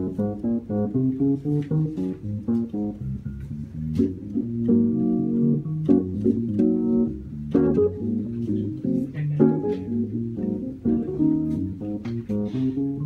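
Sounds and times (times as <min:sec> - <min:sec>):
electric piano chords: 0:00.0 - 0:13.0.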